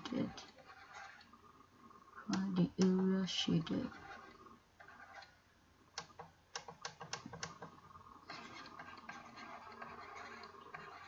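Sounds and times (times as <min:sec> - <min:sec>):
pen scratching on screen: 0:00.0 - 0:01.3, 0:03.6 - 0:05.4, 0:08.3 - 0:11.0.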